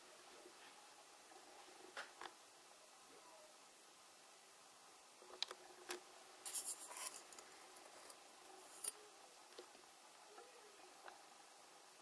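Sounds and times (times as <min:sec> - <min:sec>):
scratchy rub: 0:06.5 - 0:07.3.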